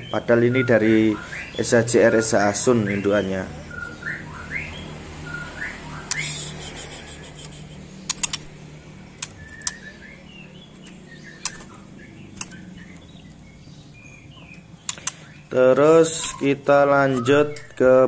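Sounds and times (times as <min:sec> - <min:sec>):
steady low hum: 0:05.2 - 0:17.8
sharp taps on cage bars: 0:06.0 - 0:13.4, 0:14.2 - 0:15.5.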